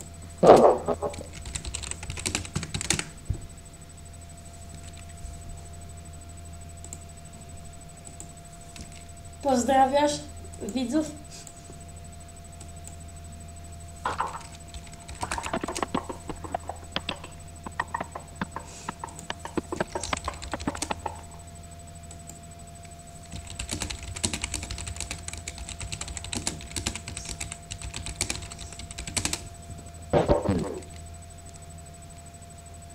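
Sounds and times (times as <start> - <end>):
keyboard typing: 0.9 - 3.1, 8.0 - 9.0, 14.1 - 21.4, 23.2 - 29.5.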